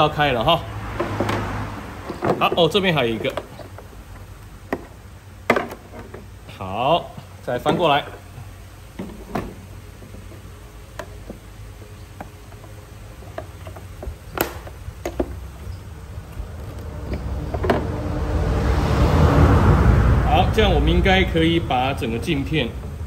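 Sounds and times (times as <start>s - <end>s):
low steady hum: 0.0s - 23.0s
rushing noise: 15.9s - 23.0s.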